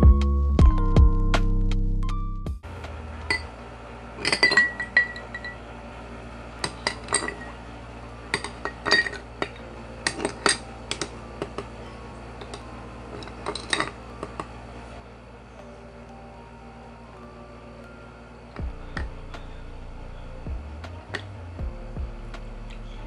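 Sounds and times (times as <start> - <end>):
glass ringing: 3.3 - 3.5, 4.2 - 5.7, 6.6 - 7.6, 8.3 - 14.6.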